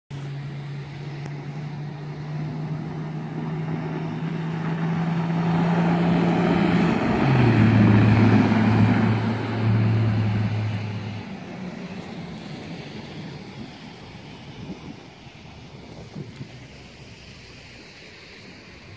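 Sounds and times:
diesel engine driving: 0.1s - 18.9s
wind-like rushing noise: 1.4s - 18.9s.

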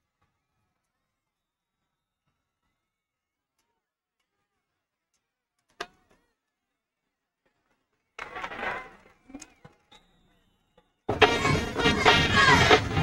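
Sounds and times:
loud music: 11.1s - 13.0s.

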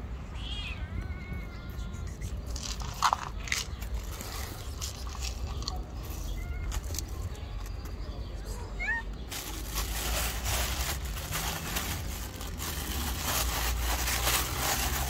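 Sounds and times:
cat meowing: 0.4s - 2.2s, 8.6s - 9.2s
kibble rattling in plastic cup: 2.5s - 7.1s, 9.3s - 15.0s
cats crunching dry food: 2.5s - 7.9s, 9.3s - 15.0s
kibble scattering on paving: 2.6s - 7.2s.

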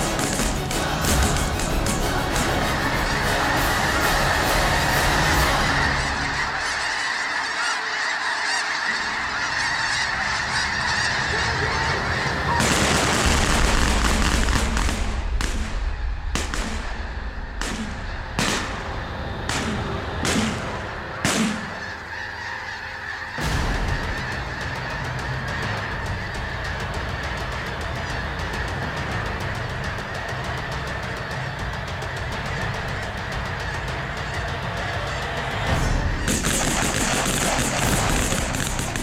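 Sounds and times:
geese honking: 0.0s - 39.0s
sharp cracks: 12.6s - 22.0s, 36.3s - 39.0s.

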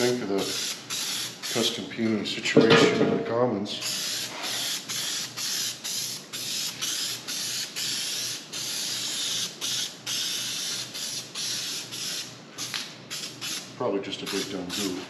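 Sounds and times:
spray-paint can hissing in bursts: 0.0s - 1.8s, 3.8s - 15.0s.

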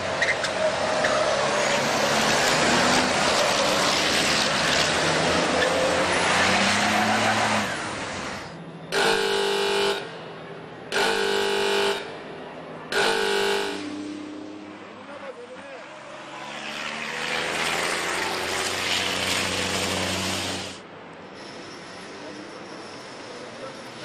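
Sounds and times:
diesel trucks passing at speed: 0.0s - 24.0s
horn blasts: 8.9s - 10.3s, 10.9s - 12.3s, 12.9s - 14.7s.

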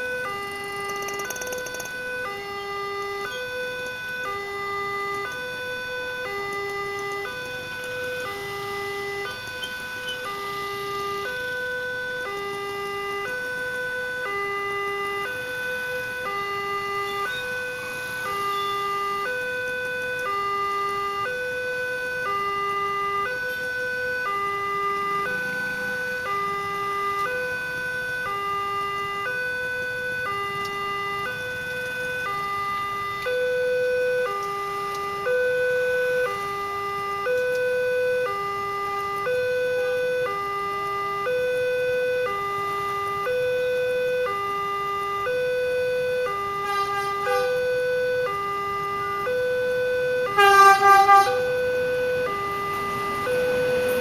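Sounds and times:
two-tone crossing alarm: 0.0s - 54.0s
train horn blast: 46.5s - 47.8s, 50.3s - 51.8s.

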